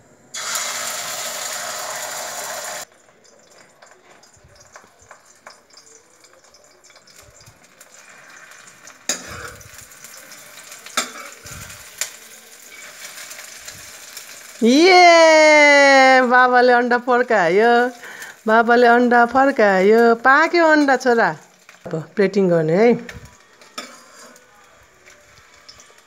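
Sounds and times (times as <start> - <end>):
egg sizzling in oil: 0.3 - 26.0
metal ladle scraping pan: 7.8 - 12.1, 23.6 - 24.5.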